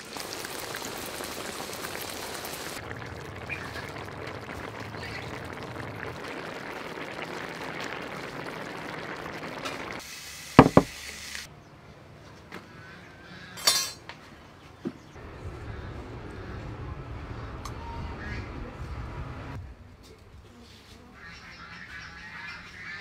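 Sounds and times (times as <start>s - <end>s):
sauce simmering and bubbling: 0.0s - 10.0s
dishes clinking: 13.6s - 14.0s.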